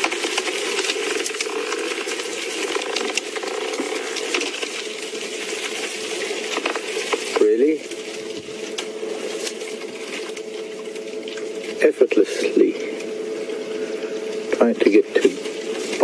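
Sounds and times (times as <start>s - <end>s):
twigs crackling and snapping: 0.0s - 11.8s.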